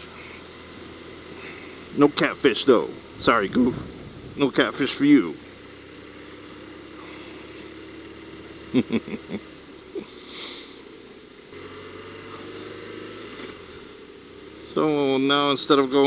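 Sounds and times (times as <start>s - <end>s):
motorcycle engine running: 0.0s - 16.0s.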